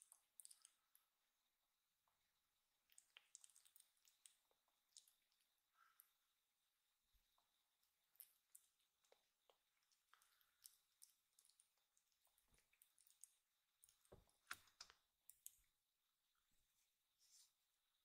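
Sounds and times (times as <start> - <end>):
kitten licking paw: 2.8 - 5.5, 8.1 - 15.7.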